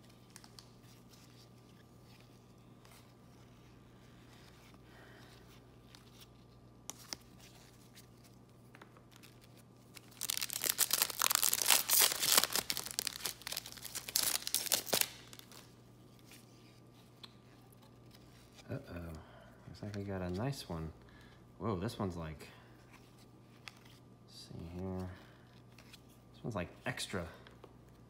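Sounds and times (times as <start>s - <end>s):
foil wrapper tearing and crinkling: 9.1s - 15.7s.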